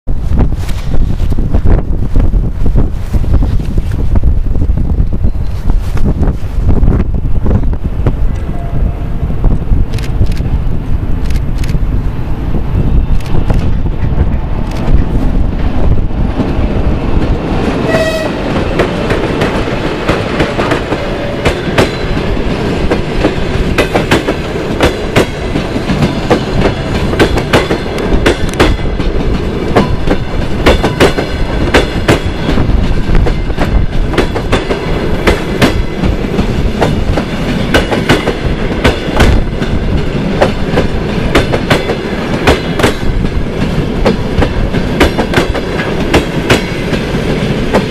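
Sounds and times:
train wheels rumbling and clicking: 0.1 - 8.7, 9.3 - 47.9
train horn: 8.5 - 9.2, 17.8 - 18.6.

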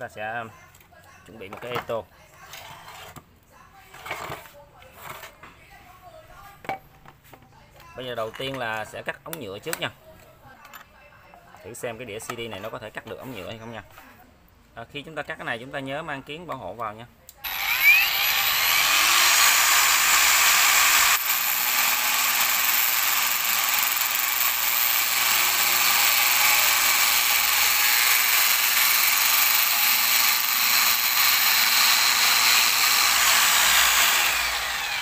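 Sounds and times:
angle grinder cutting plastic pipe: 17.4 - 35.0.

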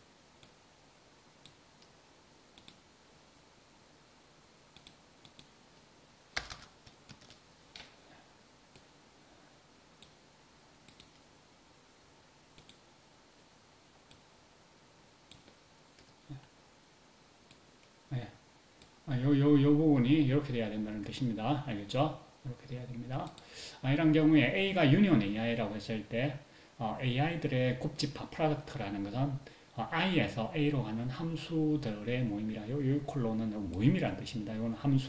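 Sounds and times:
faint steady hiss: 0.0 - 35.0
mouse and keyboard clicks: 12.6 - 12.8.

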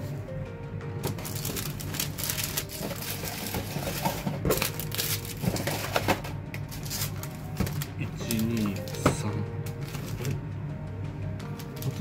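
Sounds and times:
plastic bags crinkling: 1.0 - 10.4.

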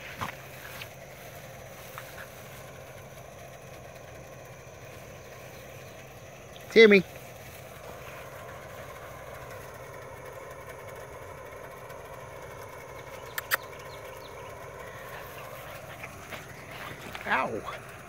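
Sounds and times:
steady engine hum: 0.0 - 18.0
sharp clicks: 13.0 - 14.4.

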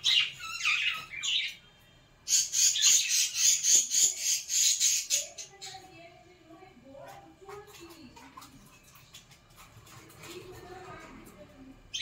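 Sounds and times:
budgerigars chattering: 2.3 - 5.8.

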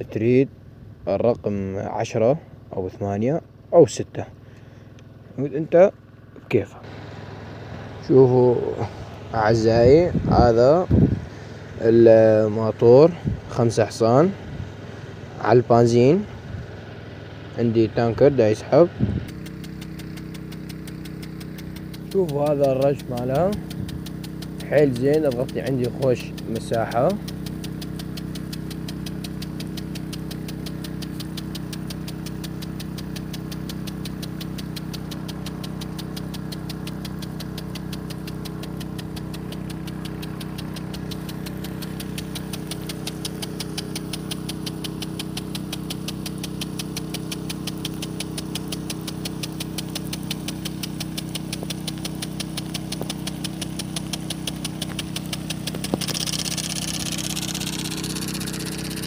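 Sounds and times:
petrol engine running steadily: 3.4 - 59.0
hiss of water spray: 19.3 - 59.0.

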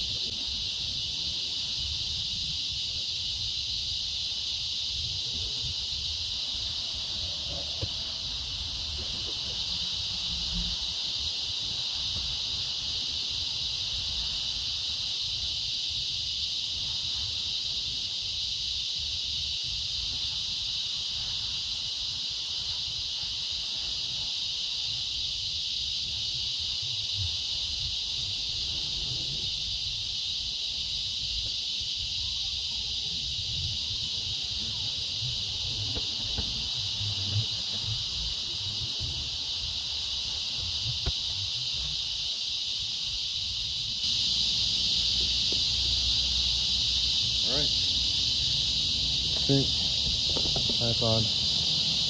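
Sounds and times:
insect chorus drone: 0.0 - 52.0.

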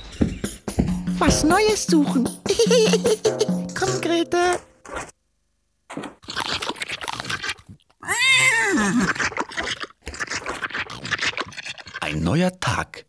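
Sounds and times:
apples being crunched: 5.9 - 8.2.

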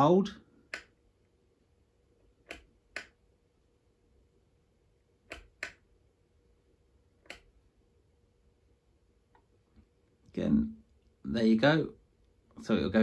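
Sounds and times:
wall switch clicking: 0.6 - 1.0, 2.4 - 3.2, 5.2 - 5.9, 7.2 - 7.6.

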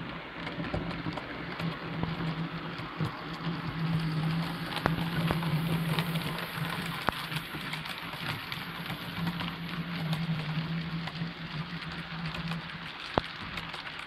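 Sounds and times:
model train wheels rattling on rail: 0.0 - 14.0.

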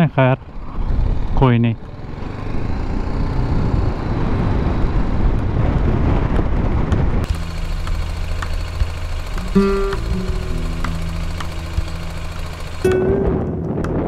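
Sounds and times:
motorcycle engine: 0.0 - 14.0
wind noise on microphone: 2.6 - 7.3
steady low hum: 7.2 - 14.0.

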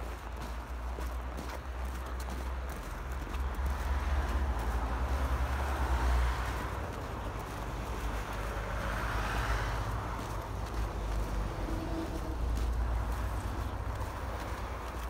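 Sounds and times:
outdoor street noise hiss: 0.0 - 15.0.

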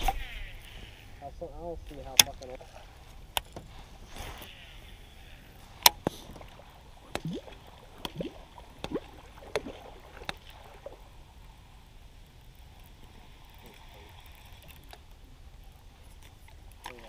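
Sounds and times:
short creaks: 0.0 - 1.2, 3.4 - 6.5.

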